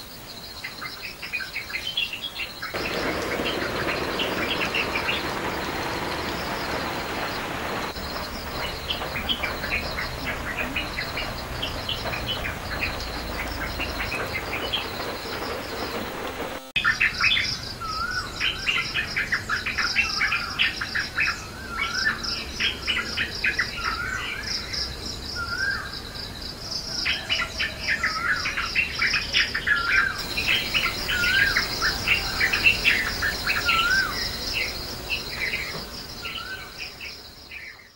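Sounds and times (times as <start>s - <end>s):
birds chirping and calling: 1.0s - 18.6s, 29.8s - 37.8s.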